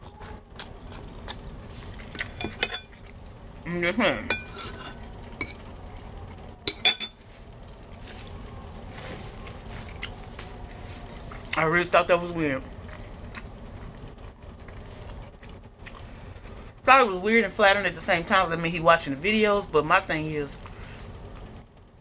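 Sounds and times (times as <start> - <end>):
fork clinking against bowl: 4.3 - 5.6.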